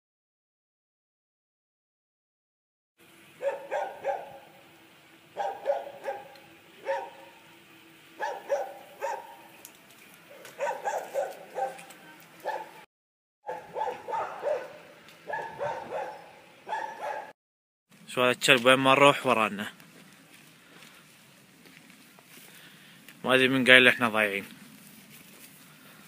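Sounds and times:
dog barking: 0:03.4 - 0:04.5, 0:05.4 - 0:07.4, 0:08.2 - 0:09.5, 0:10.3 - 0:12.8, 0:13.4 - 0:17.4.

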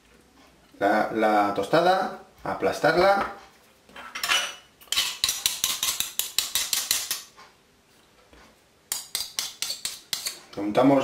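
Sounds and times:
metal spoon scraping bread: 0:04.9 - 0:07.4, 0:08.9 - 0:10.5.

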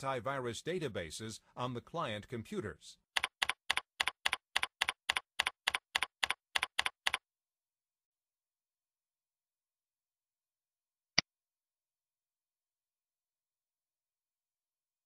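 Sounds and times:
computer keyboard keystrokes: 0:03.2 - 0:07.2.

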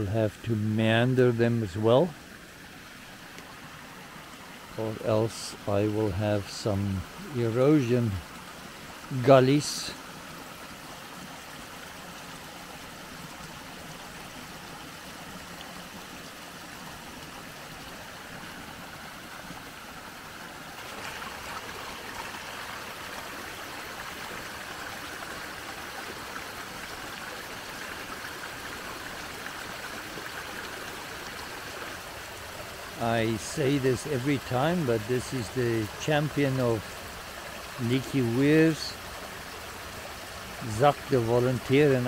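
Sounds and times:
water trickling through a gully: 0:00.0 - 0:42.0.

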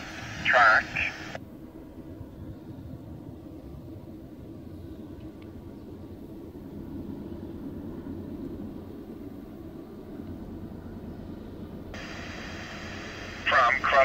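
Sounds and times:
radio static: 0:00.0 - 0:01.4, 0:12.0 - 0:14.0
low distant rumble: 0:11.2 - 0:14.0.

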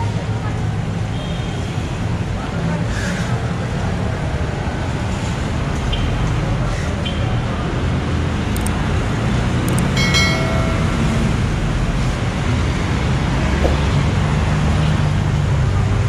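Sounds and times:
traffic engines rumbling: 0:00.0 - 0:16.0
high-pitched tone: 0:09.7 - 0:11.5.

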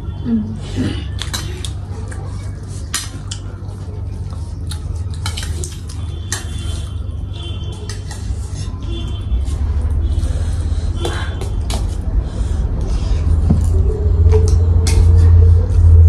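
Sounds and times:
steady low hum: 0:00.0 - 0:16.0
cutlery clinking on metal plates: 0:05.0 - 0:06.9, 0:07.7 - 0:08.4.

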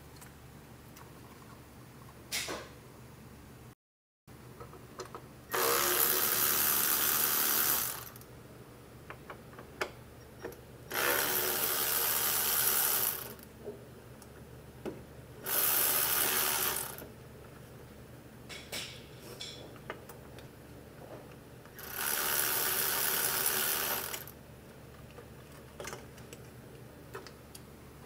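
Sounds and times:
power ratchet running: 0:05.5 - 0:08.2, 0:10.9 - 0:13.4, 0:15.4 - 0:17.0, 0:21.8 - 0:24.3.

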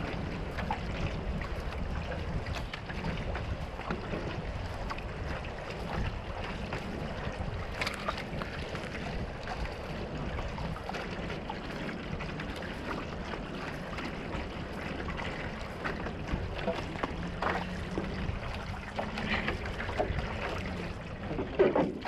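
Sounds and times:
paddle strokes: 0:00.0 - 0:22.0
small splashes: 0:00.0 - 0:22.0
water rushing along canoe hull: 0:00.0 - 0:22.0
wind on microphone: 0:00.0 - 0:22.0.

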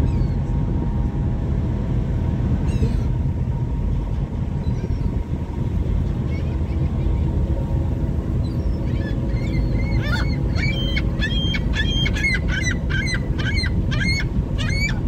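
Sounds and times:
boat engine rumble: 0:00.0 - 0:15.0
gull yelping calls: 0:08.8 - 0:15.0.

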